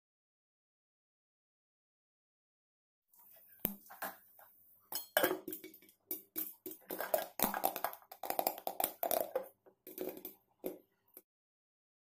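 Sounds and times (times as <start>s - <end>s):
popcorn popping in a pot: 5.0s - 11.2s.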